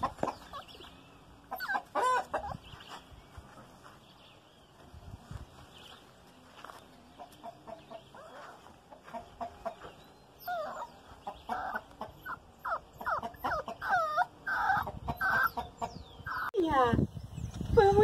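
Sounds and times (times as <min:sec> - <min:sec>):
chickens clucking: 0:00.0 - 0:00.9, 0:01.5 - 0:02.8, 0:07.1 - 0:16.5.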